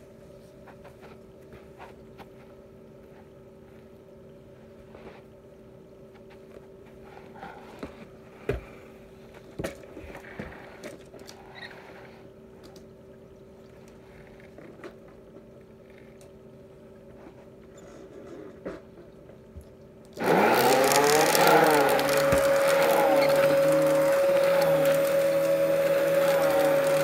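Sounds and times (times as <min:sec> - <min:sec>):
faint steady hum: 0:00.0 - 0:20.2
vacuum wand knocking and scraping: 0:20.2 - 0:27.0.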